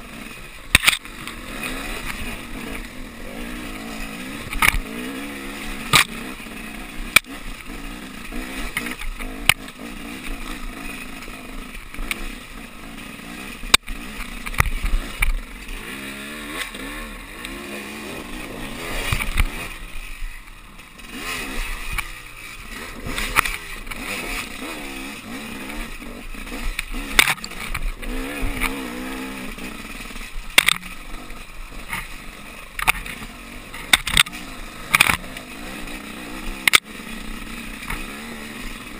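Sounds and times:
dirt bike engine running: 0.0s - 38.9s
bike knocking and rattling on rocks: 0.7s - 1.4s, 4.4s - 5.0s, 5.8s - 6.3s, 13.6s - 15.4s, 26.6s - 29.0s, 30.3s - 31.0s, 31.8s - 35.4s.

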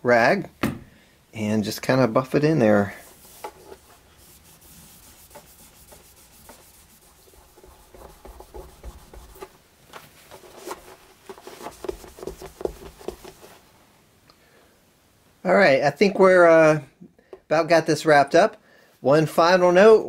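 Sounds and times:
cloth rubbing wood: 2.3s - 13.7s.

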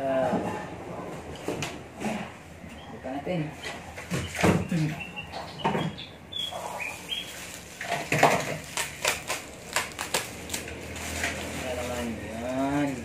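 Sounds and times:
plastic wrapping crinkling: 6.4s - 13.0s.

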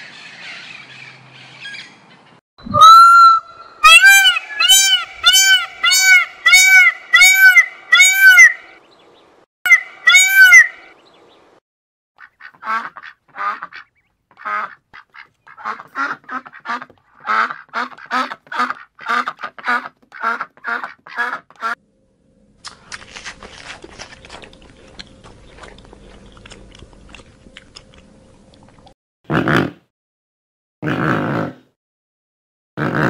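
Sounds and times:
peacock calling: 2.6s - 8.8s, 9.7s - 11.0s
ducks quacking: 12.2s - 21.8s.

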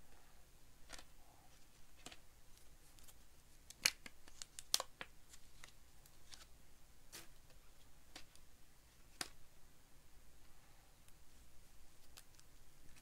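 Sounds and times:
cards flipping and snapping: 2.0s - 6.5s, 9.1s - 9.4s, 12.0s - 13.0s.

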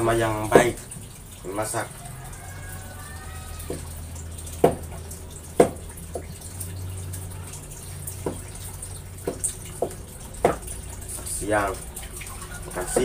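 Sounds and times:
water splashing in a basin: 0.0s - 13.0s
knife knocking on cutting board: 4.6s - 4.8s.

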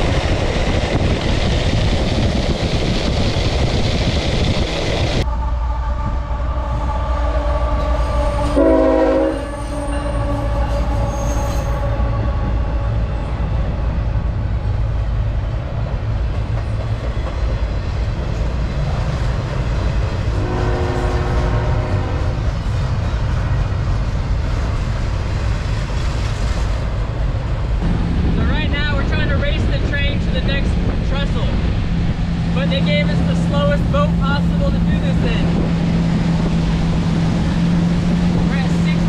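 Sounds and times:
freight train rumbling: 0.0s - 39.0s
train air horn chord: 5.3s - 12.5s, 20.4s - 22.4s.

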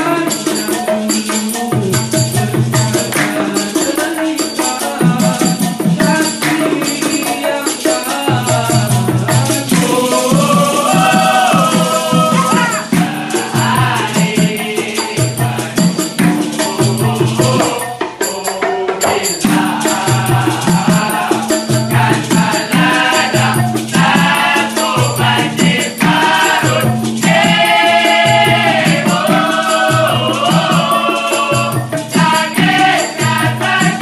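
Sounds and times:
male chorus singing: 0.0s - 34.0s
maracas shaking: 0.0s - 34.0s
hand claps: 3.1s - 3.6s, 6.4s - 6.8s.

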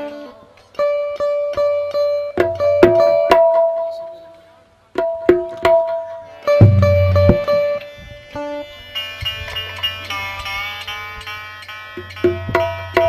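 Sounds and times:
plucked zither melody: 0.0s - 4.3s, 5.0s - 13.0s
hand drum strokes: 1.6s - 4.1s, 5.0s - 7.8s, 12.0s - 13.0s.

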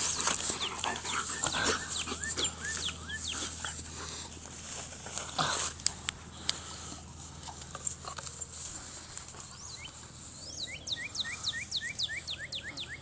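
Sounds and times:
songbird chirping: 0.0s - 3.9s, 8.8s - 13.0s
rustling: 0.0s - 10.8s.

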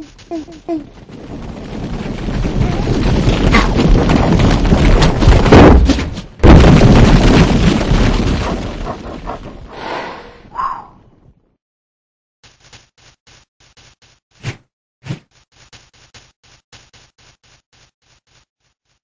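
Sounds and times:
boulder rumbling down a slope: 0.1s - 9.9s.

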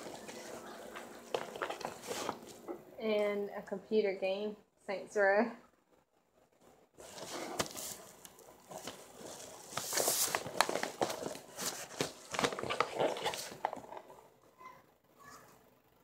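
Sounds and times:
paper rustling and crinkling: 0.0s - 2.7s, 7.0s - 14.2s.

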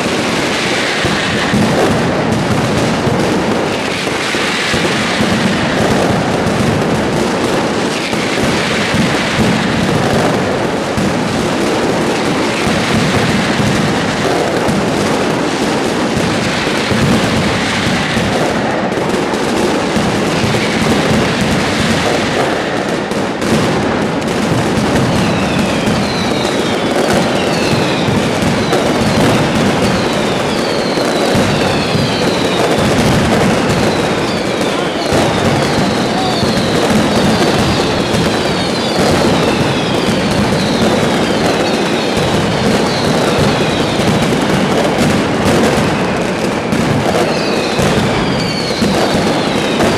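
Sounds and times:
firecrackers banging and crackling: 0.0s - 49.9s
falling whistles: 25.2s - 32.8s, 33.7s - 42.1s, 47.3s - 49.8s.

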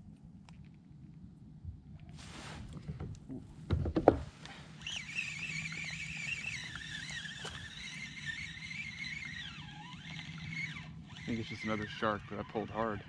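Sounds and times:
fishing reel whining: 4.8s - 13.0s.

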